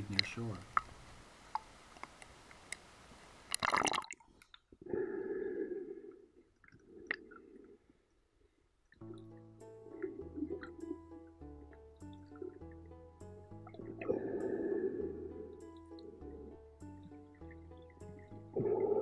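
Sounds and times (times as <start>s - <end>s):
music: 9.0s - 19.0s.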